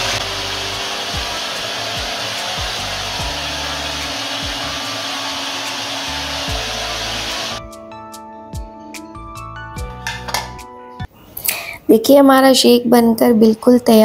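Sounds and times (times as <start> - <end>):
electric chopper motor running: 0.0 - 7.6.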